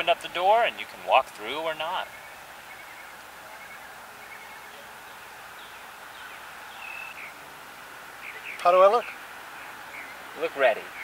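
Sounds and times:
background hiss: 0.0s - 11.0s
faint bird chirps: 2.0s - 7.4s, 8.2s - 11.0s.

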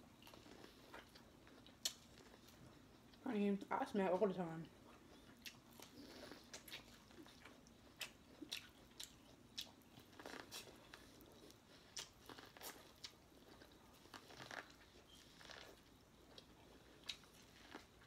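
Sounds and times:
person chewing corn on the cob: 0.0s - 3.2s, 4.7s - 18.0s.

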